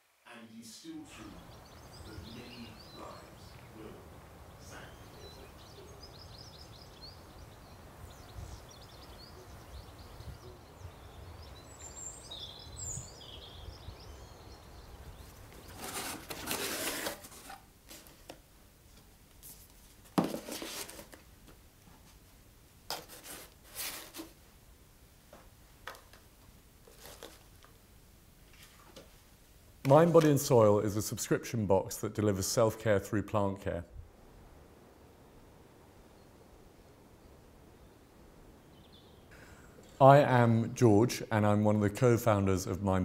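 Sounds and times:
faint bird chirps: 0:00.4 - 0:15.8, 0:35.0 - 0:40.0
cardboard rubbing: 0:15.6 - 0:18.4, 0:19.4 - 0:21.3, 0:22.9 - 0:24.4, 0:26.8 - 0:27.5
packing rustling: 0:15.6 - 0:18.4, 0:19.6 - 0:21.3, 0:22.9 - 0:24.4, 0:26.8 - 0:27.5.

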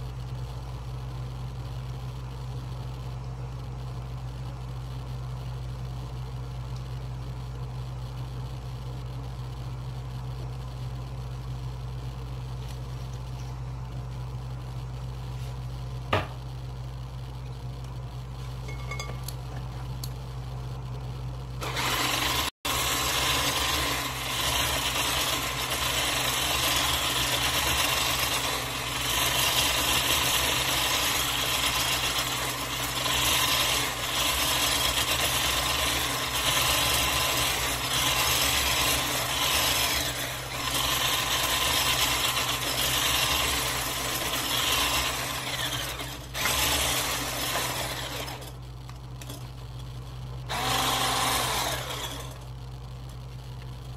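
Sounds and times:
electric hand mixer whisking batter: 0:21.6 - 0:48.5, 0:50.5 - 0:52.4.

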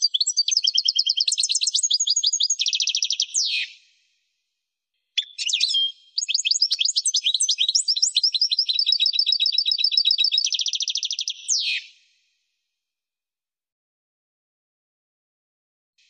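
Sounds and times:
goldfinch twittering song: 0:00.0 - 0:03.8, 0:05.2 - 0:12.0.

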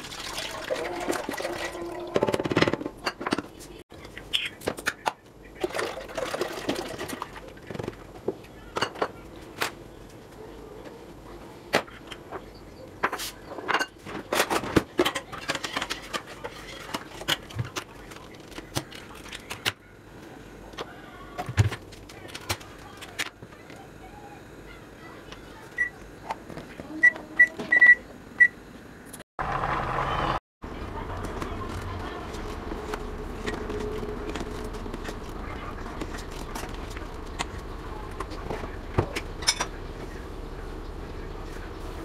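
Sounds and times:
rice pouring into a pot: 0:00.0 - 0:01.8.

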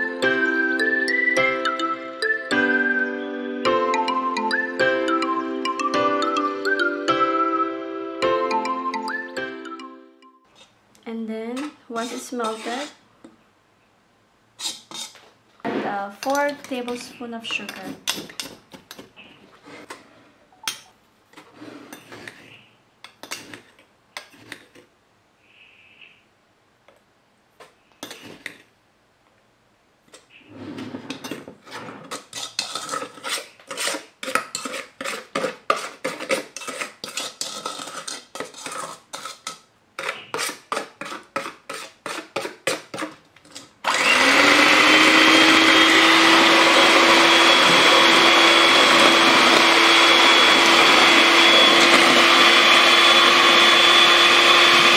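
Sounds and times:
spoon stirring in metal bowl: 0:11.5 - 0:13.0, 0:14.6 - 0:15.2, 0:16.2 - 0:20.0, 0:20.6 - 0:24.9, 0:28.0 - 0:28.7, 0:31.1 - 0:54.9
electric hand mixer running: 0:43.8 - 0:54.9.

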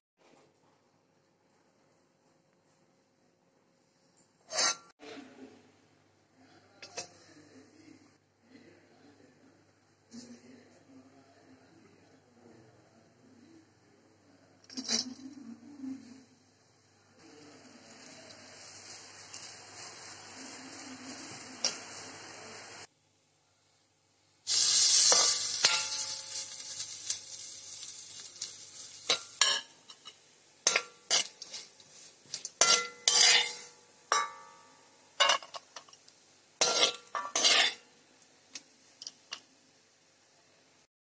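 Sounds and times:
metal spoon scraping a pan: 0:04.4 - 0:04.9, 0:14.7 - 0:16.1, 0:17.8 - 0:22.9, 0:24.5 - 0:37.9
food sizzling in a pan: 0:14.7 - 0:40.9.

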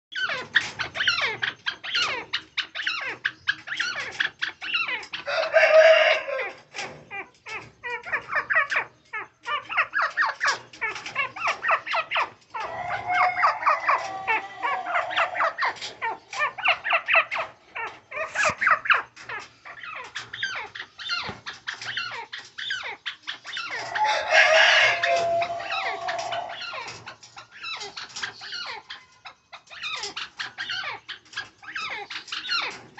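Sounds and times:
animal chirps and squeals: 0:00.2 - 0:32.8
long held animal call: 0:12.5 - 0:16.7, 0:23.7 - 0:27.0.

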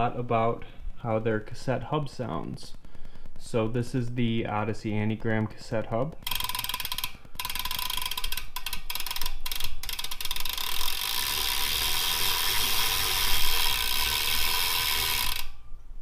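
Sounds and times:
bicycle hub ratcheting buzz: 0:06.2 - 0:15.6.

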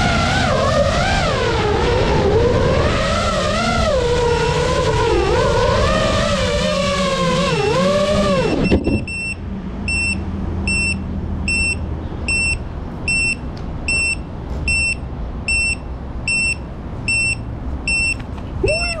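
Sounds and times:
short high beeps: 0:08.6 - 0:18.2.

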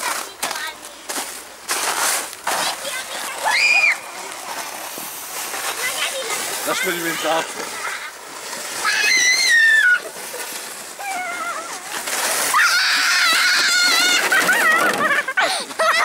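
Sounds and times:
children shrieking and squealing: 0:02.7 - 0:04.5, 0:05.8 - 0:16.0.

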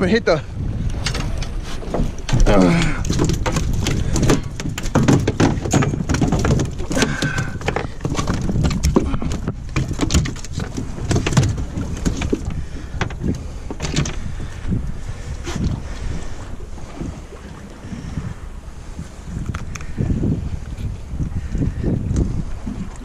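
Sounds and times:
fish slapping on boat deck: 0:01.3 - 0:14.6.

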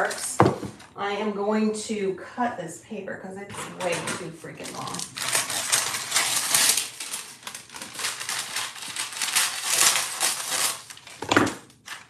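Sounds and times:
paper crinkling: 0:03.8 - 0:12.0
scissors snipping paper: 0:04.7 - 0:11.2.

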